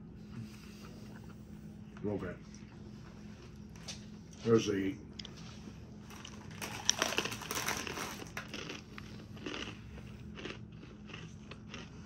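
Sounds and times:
crunchy chewing of snack: 5.2 - 12.0.

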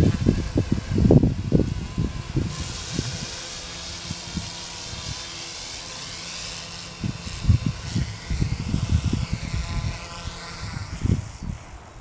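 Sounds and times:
rc helicopter motor and rotor whine: 0.0 - 12.0.

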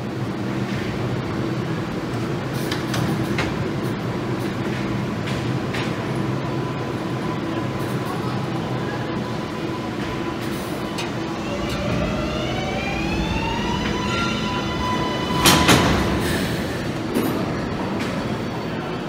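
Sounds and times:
rail rumble: 0.0 - 19.0
train motors whining: 8.5 - 18.6.

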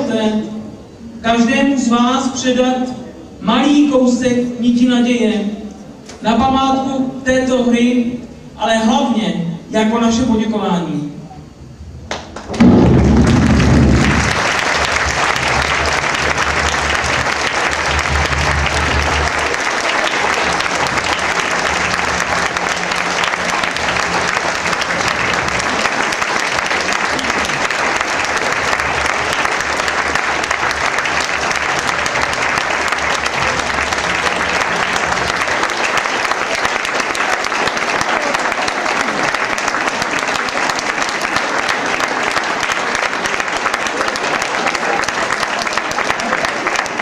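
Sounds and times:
audience applauding: 12.1 - 47.0.

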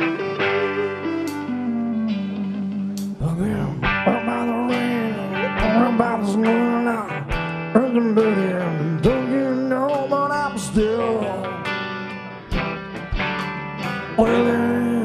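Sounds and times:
fiddle lead: 0.0 - 7.4
electric guitar chords: 0.0 - 15.0.

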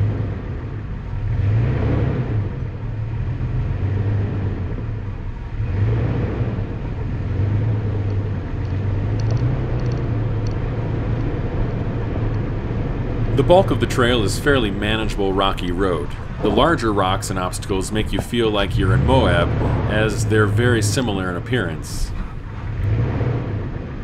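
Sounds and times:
truck engine low rumble: 0.0 - 24.0
rushing noise: 6.0 - 24.0.

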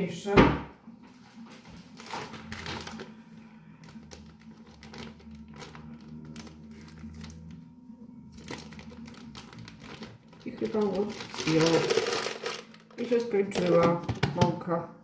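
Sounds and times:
steady low hum: 0.7 - 14.1
plastic bag crinkling: 1.8 - 7.6, 8.3 - 14.3.

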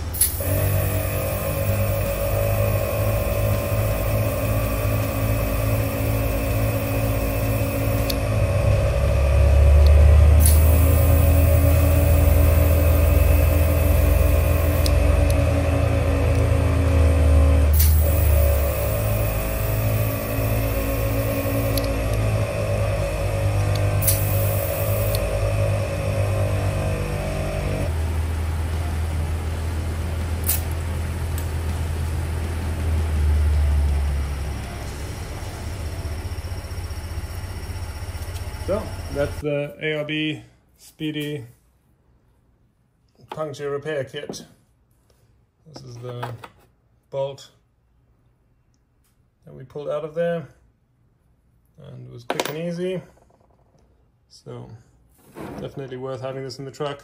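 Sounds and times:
air compressor humming: 0.0 - 39.6
high whine: 0.0 - 39.6.

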